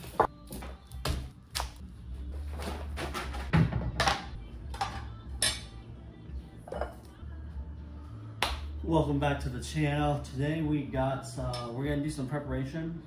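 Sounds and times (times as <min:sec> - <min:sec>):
kitchenware clinking: 0:06.7 - 0:07.1.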